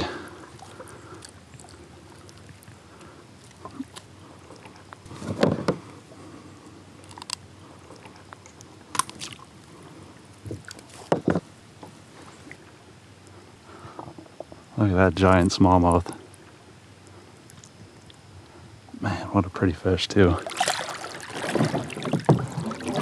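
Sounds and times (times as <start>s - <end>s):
low steady hiss: 0.0s - 23.0s
knocks and taps in plastic kayak: 5.2s - 5.8s, 10.5s - 12.0s, 21.4s - 22.6s.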